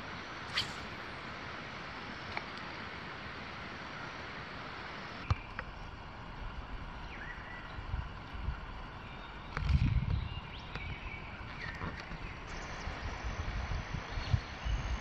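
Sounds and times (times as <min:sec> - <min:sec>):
soft outdoor hiss: 0:00.0 - 0:15.0
short rising chirp: 0:00.5 - 0:01.1.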